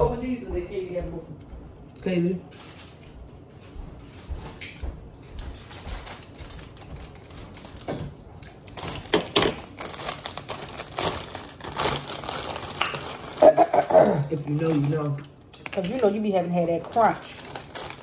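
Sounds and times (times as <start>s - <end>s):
chip bag crinkling: 5.5s - 18.0s
chips crunching: 8.4s - 18.0s.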